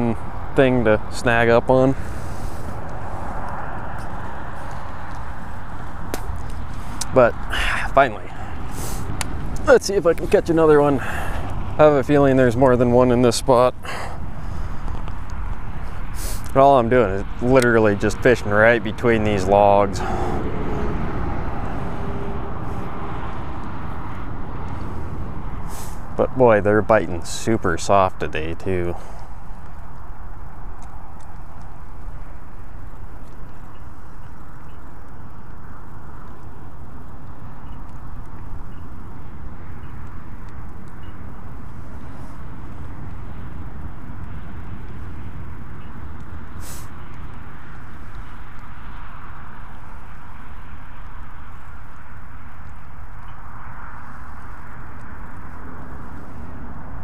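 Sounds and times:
wind buffeting microphone: 0.0s - 57.0s
short sharp hiss: 16.2s - 16.5s, 25.7s - 26.0s, 46.6s - 46.9s.

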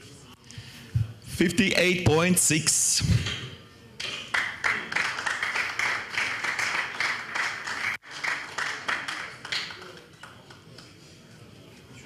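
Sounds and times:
crowd clapping: 4.0s - 11.0s.

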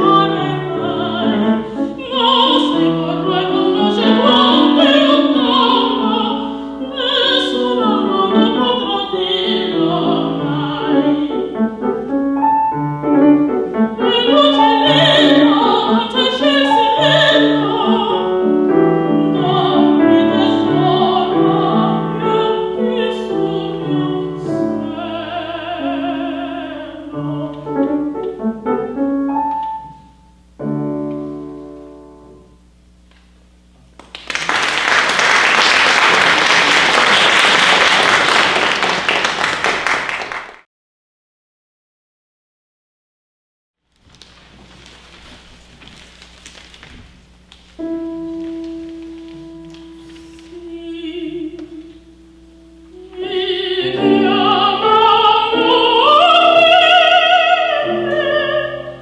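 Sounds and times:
woman singing operatically: 0.0s - 11.6s, 13.9s - 27.9s, 50.4s - 52.1s, 52.9s - 59.0s
grand piano: 0.0s - 40.3s, 43.9s - 59.0s.

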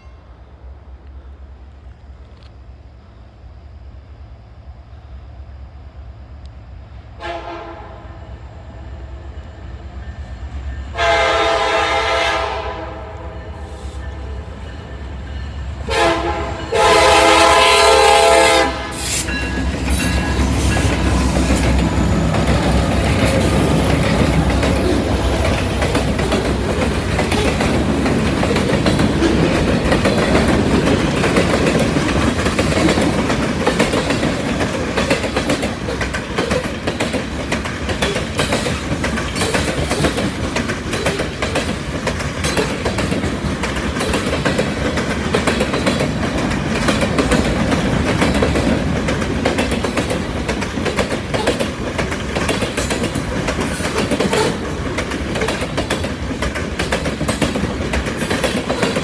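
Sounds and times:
train rumbling past: 0.0s - 59.0s
train horn blasts: 7.2s - 8.4s, 10.9s - 14.5s, 15.8s - 19.2s
wheels clacking over rails: 19.1s - 59.0s.

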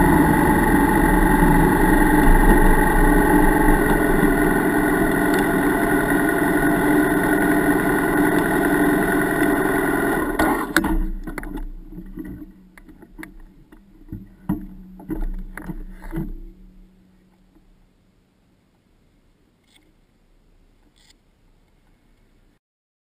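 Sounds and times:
motorcycle engine idling: 0.0s - 17.8s
faint steady hum: 0.0s - 22.6s.

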